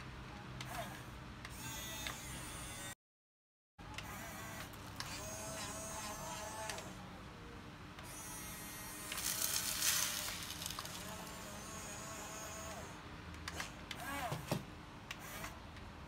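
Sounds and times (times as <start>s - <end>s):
small electric motors whining: 0.6s - 3.0s, 4.0s - 7.1s, 8.0s - 14.4s, 15.1s - 15.6s
gravel tipped into plastic truck: 9.2s - 11.1s.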